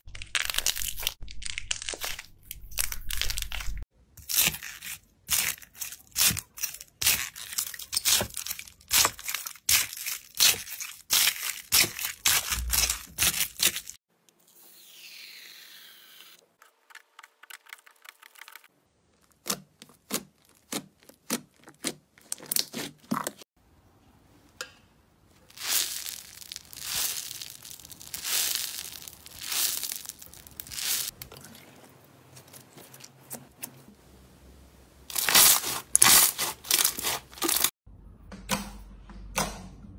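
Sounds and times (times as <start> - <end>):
foam balls crackling: 25.4 - 31.3, 35.1 - 37.7.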